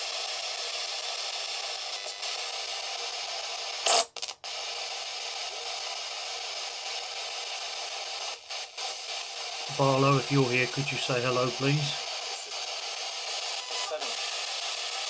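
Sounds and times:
radio static hiss: 0:00.0 - 0:15.0
loud static burst: 0:06.3 - 0:15.0.

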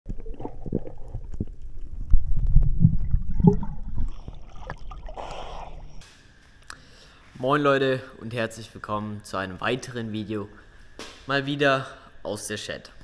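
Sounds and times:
underwater rumbling and gurgling: 0:00.1 - 0:06.0
water sloshing: 0:00.1 - 0:06.0.

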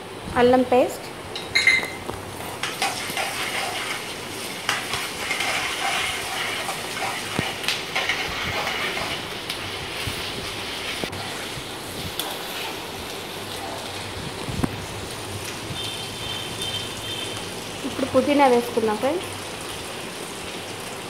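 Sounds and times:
onions sizzling in hot oil: 0:00.4 - 0:21.0
ladle scraping and clinking on pan: 0:01.4 - 0:09.3.

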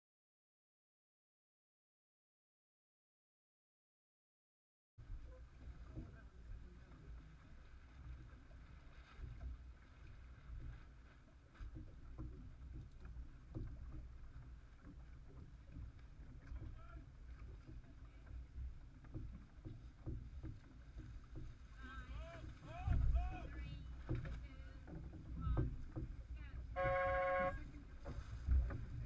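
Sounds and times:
water lapping against boat hull: 0:05.0 - 0:29.0
small knocks: 0:11.6 - 0:21.6, 0:24.0 - 0:26.2
wind rumble on microphone: 0:22.5 - 0:29.0.

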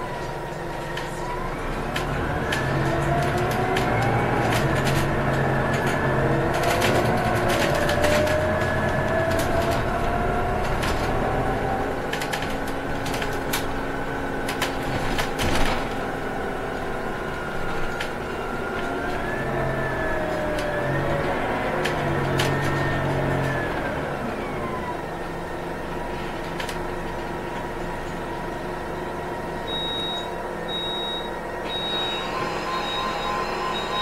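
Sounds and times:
bus engine running: 0:00.0 - 0:34.0
rising whine: 0:31.6 - 0:34.0.

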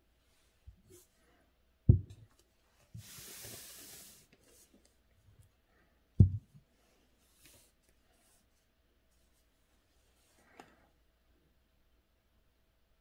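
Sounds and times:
dull thump: 0:01.9 - 0:02.2, 0:06.2 - 0:06.5
soft rubbing on paper: 0:02.6 - 0:05.0, 0:06.7 - 0:10.5.

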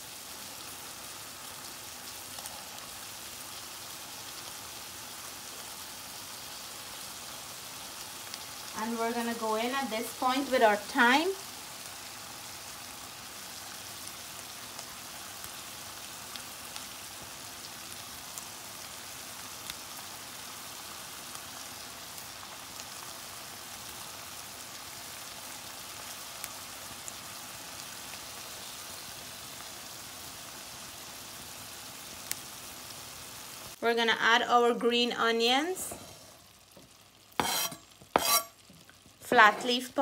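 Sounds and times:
food sizzling in a pot: 0:00.0 - 0:40.0.

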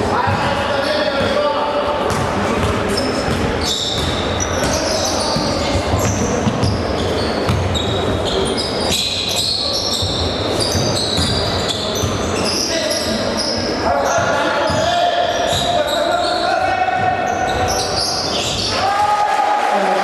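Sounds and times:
voices echoing in hall: 0:00.0 - 0:20.0
sneakers squeaking on gym floor: 0:02.1 - 0:18.8.

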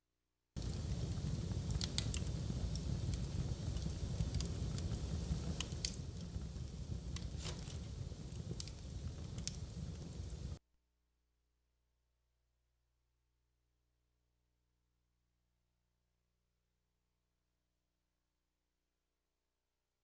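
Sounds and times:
low rumble of flames: 0:00.6 - 0:10.6
logs popping and snapping: 0:07.2 - 0:09.7.

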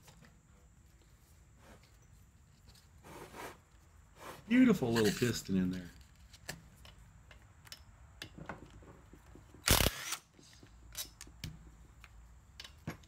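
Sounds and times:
metal tools clicking and tapping: 0:06.8 - 0:08.4.

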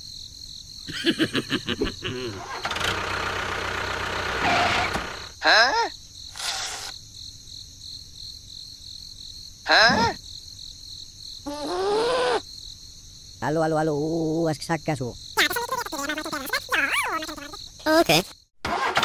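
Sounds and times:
crickets chirping: 0:00.0 - 0:18.5
toy tractor engine noise: 0:00.9 - 0:05.4, 0:15.4 - 0:19.0.

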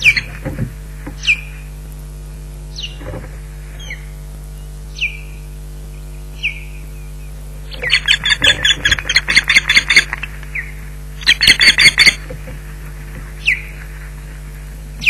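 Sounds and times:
osprey alarm calls: 0:00.0 - 0:00.5, 0:01.1 - 0:01.7, 0:02.7 - 0:04.2, 0:04.9 - 0:05.5, 0:06.3 - 0:12.5, 0:13.2 - 0:13.9.

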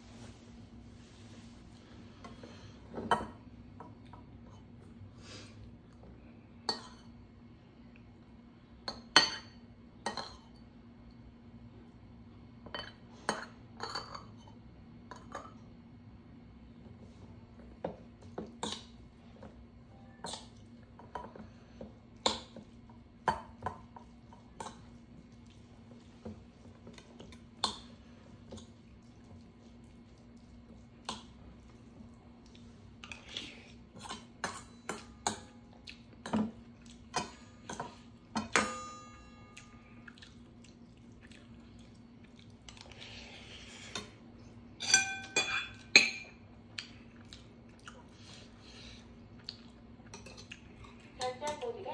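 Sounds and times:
metal spoon clinking on steel bowl: 0:38.4 - 0:39.6, 0:44.8 - 0:46.3.

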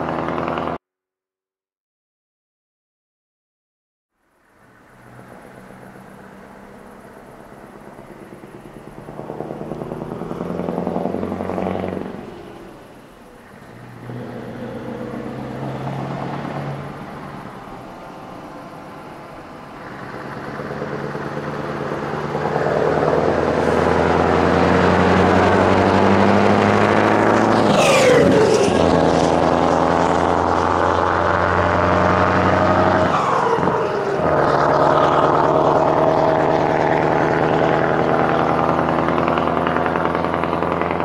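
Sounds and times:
truck engine accelerating: 0:00.0 - 0:00.8, 0:04.2 - 0:41.0.

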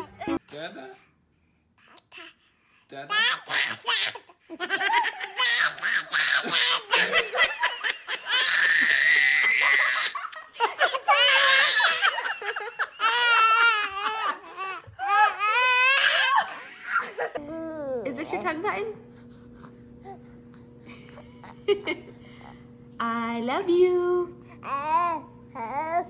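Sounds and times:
baby laughing: 0:03.1 - 0:17.5
baby squealing and crying: 0:04.8 - 0:07.1, 0:08.1 - 0:17.4.

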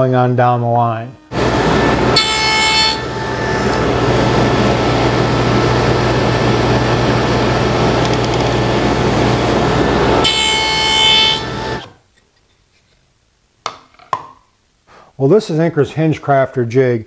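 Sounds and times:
table saw humming: 0:00.4 - 0:12.0
saw blade whining through wood: 0:01.1 - 0:06.6, 0:08.6 - 0:12.0.

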